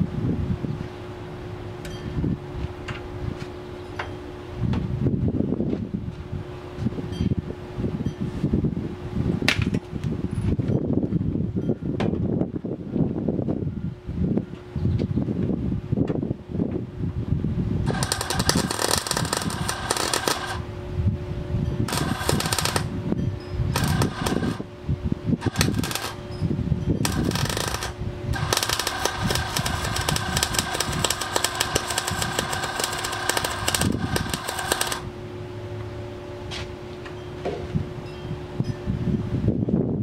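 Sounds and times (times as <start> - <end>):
steady hum: 16.8 - 37.0
arc welder crackling: 17.8 - 20.7, 21.9 - 23.0, 23.7 - 24.7, 25.4 - 26.3, 27.0 - 35.1.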